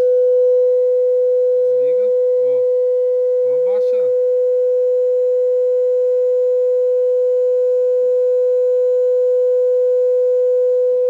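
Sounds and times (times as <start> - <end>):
steady sine test tone: 0.0 - 11.0.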